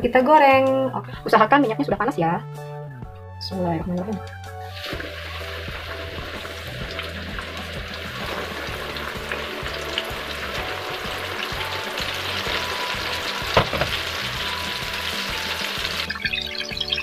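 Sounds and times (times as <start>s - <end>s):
chicken sizzling in hot oil: 4.6s - 17.0s.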